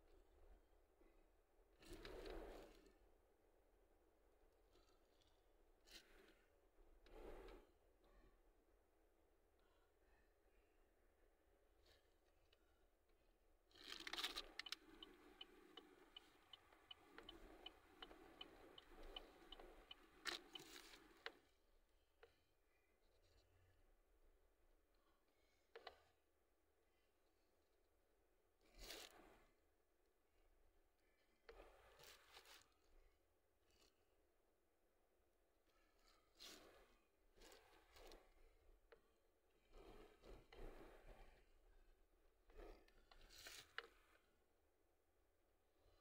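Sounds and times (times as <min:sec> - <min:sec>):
turn signal ticking: 0:14.5 - 0:20.7.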